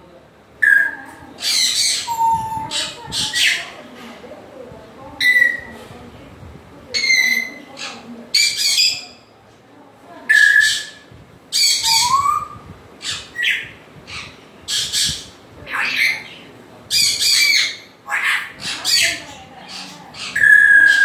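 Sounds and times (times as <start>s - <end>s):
parrot squawks and whistles: 10.3s - 11.0s, 11.6s - 13.7s, 20.2s - 21.0s.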